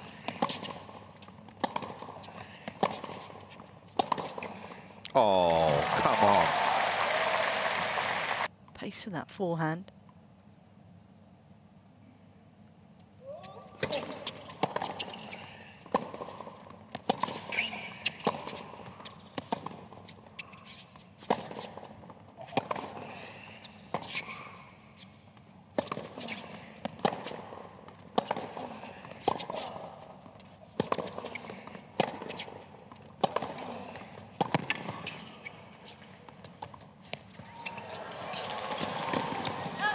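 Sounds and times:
tennis ball bouncing on court: 0:00.3 - 0:04.5, 0:13.7 - 0:23.0, 0:25.7 - 0:39.8
tennis ball hit by rackets: 0:01.5 - 0:02.2, 0:03.9 - 0:04.5, 0:15.9 - 0:19.9, 0:22.5 - 0:23.0, 0:25.7 - 0:30.0, 0:33.2 - 0:33.8, 0:34.4 - 0:35.2.

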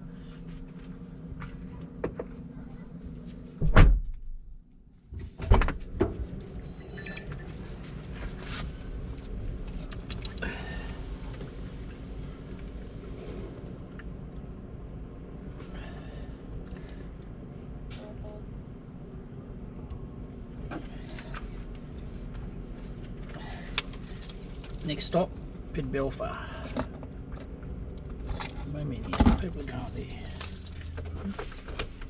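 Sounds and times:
steady low hum: 0:00.0 - 0:32.0
car door thudding shut: 0:03.6 - 0:04.1.

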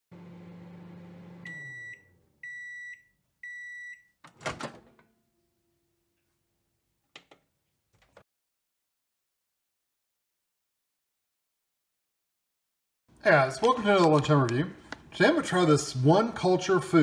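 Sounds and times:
microwave oven humming: 0:00.1 - 0:02.8.

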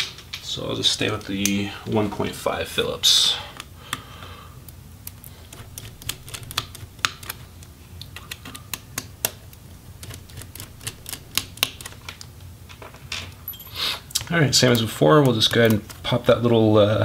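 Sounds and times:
faint low hum: 0:00.3 - 0:17.0.

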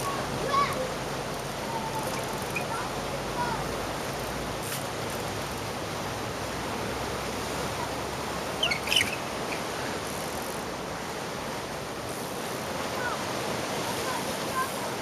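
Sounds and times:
sea surf: 0:00.0 - 0:15.0
wind: 0:00.0 - 0:15.0
high squeaks and clicks: 0:02.0 - 0:02.7, 0:08.6 - 0:09.2.

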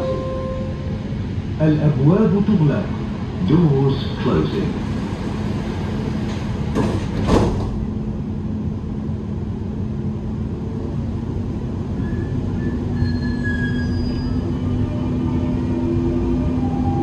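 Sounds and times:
faint train whine: 0:00.0 - 0:17.0
train carriage hum: 0:00.0 - 0:17.0
train doors closing with thuds: 0:05.0 - 0:08.0.

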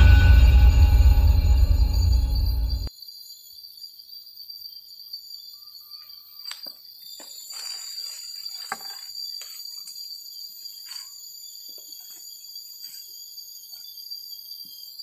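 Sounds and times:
crickets and night insects chirping: 0:00.0 - 0:15.0.

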